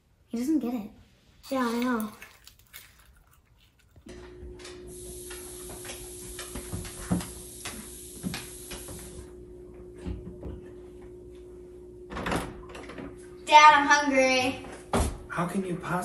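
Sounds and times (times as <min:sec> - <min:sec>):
steady low hum: 0:04.0 - 0:16.0
high hiss: 0:04.9 - 0:09.4.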